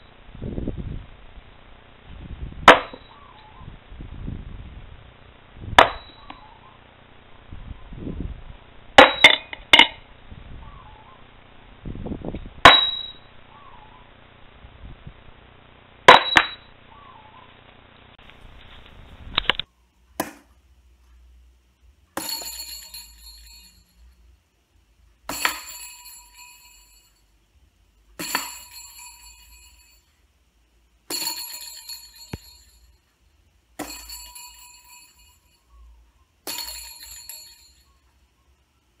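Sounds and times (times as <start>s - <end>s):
metallic bell-like rings: 22.2s - 24.2s, 25.3s - 27.3s, 28.2s - 30.1s, 31.1s - 33.0s, 33.8s - 35.7s, 36.5s - 38.1s.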